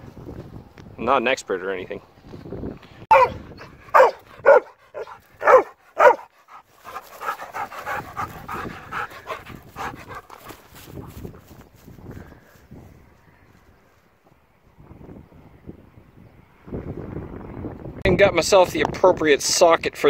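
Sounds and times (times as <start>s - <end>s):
dog barking: 3.1s - 6.3s
dog panting: 3.2s - 11.2s.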